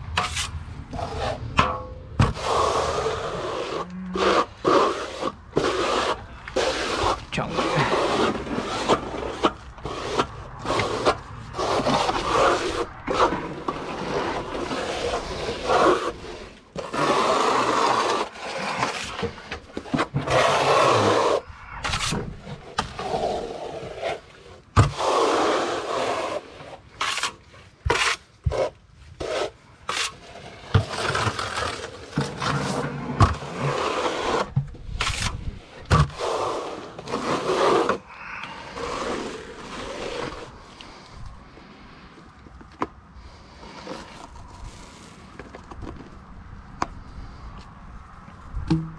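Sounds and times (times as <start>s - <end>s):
trowel scraping on wall: 0.1s - 41.2s
sharp knocks: 48.6s - 48.9s.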